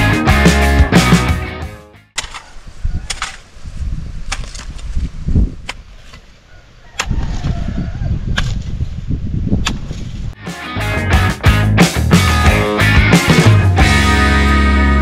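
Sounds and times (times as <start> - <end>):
digging tool striking soil: 2.2 - 3.5, 4.2 - 5.0, 8.3 - 8.7, 9.6 - 10.0.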